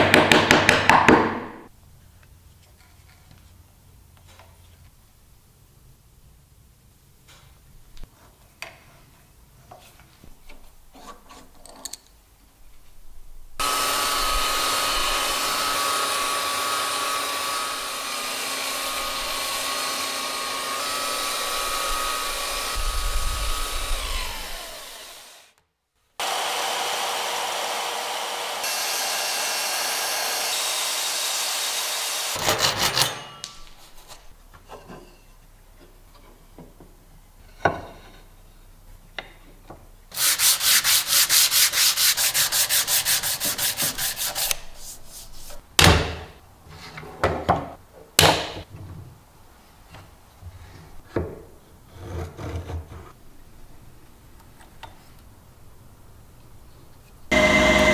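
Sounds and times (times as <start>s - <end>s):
electric belt sander whirring: 13.6s - 25.5s, 26.2s - 32.4s, 57.3s - 57.9s
hand-sanding wood with sandpaper: 40.1s - 45.6s.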